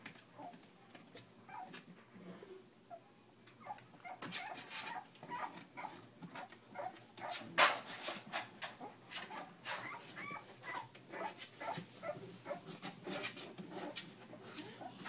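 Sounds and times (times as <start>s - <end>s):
puppies whimpering and squeaking: 1.5s - 1.8s, 3.6s - 7.4s, 8.8s - 15.0s.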